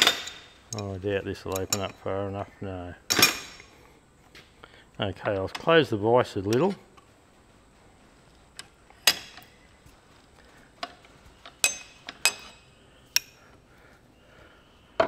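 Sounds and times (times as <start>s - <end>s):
metallic clinks and knocks: 0.0s - 2.1s, 3.1s - 3.7s, 8.6s - 9.6s, 10.8s - 13.4s.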